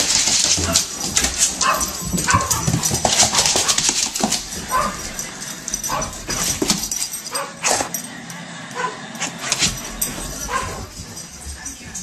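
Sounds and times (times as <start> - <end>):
clicking and scrabbling: 0.0 - 7.9
dog yipping: 1.6 - 3.8, 4.7 - 5.0, 10.5 - 10.9.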